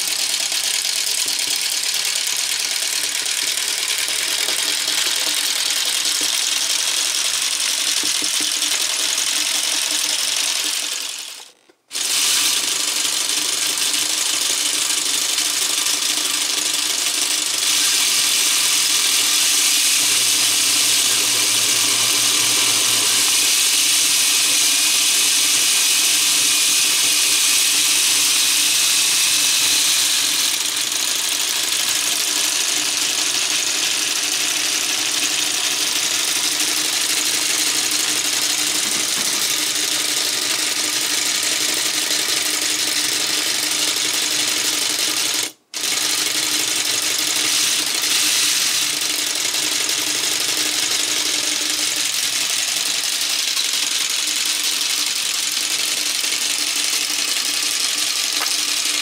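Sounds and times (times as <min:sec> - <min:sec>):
mechanical whir: 0:00.0 - 0:43.7, 0:45.8 - 0:59.0
plastic engine model clatter: 0:00.0 - 0:59.0.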